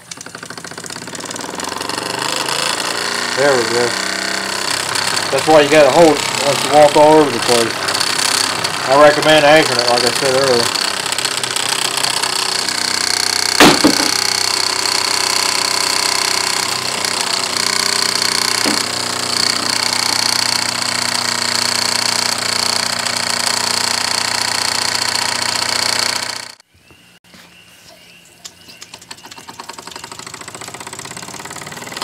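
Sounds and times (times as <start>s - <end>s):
model steam engine clattering: 0.0s - 26.6s, 29.1s - 32.0s
sharp knock: 13.6s - 14.3s.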